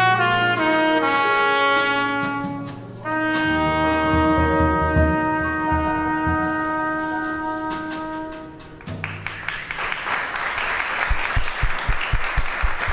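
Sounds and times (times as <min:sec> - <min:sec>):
jazz trumpet: 0:00.0 - 0:09.3
keyboard and drums: 0:01.0 - 0:09.0
audience applause: 0:09.0 - 0:12.9.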